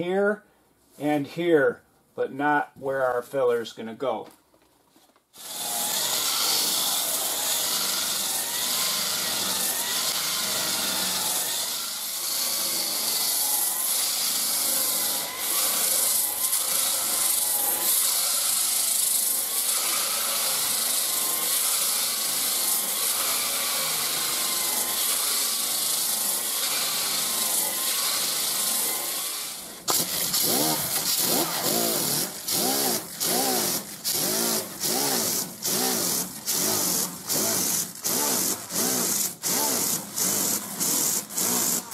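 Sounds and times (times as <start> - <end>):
air sander strokes: 29.5 - 41.9.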